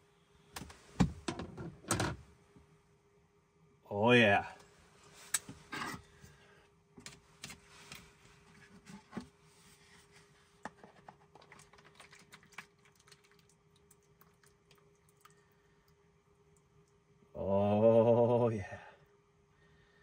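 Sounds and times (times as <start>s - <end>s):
soup pouring into bowl: 11.3s - 15.4s.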